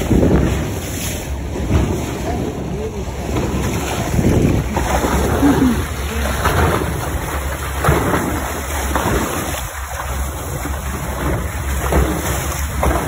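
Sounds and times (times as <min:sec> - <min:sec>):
wind on microphone: 0:00.0 - 0:09.8
water rushing along boat hull: 0:00.0 - 0:13.0
water sloshing: 0:00.0 - 0:13.0.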